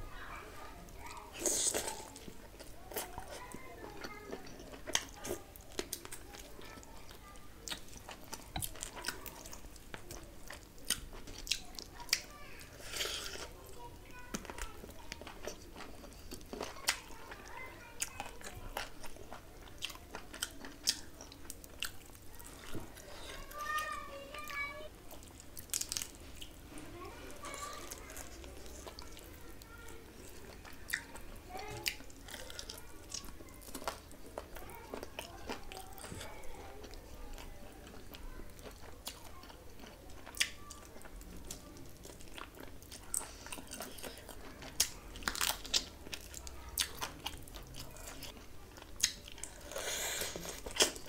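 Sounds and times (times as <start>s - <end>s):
person chewing food: 0.9s - 23.9s, 24.5s - 51.0s.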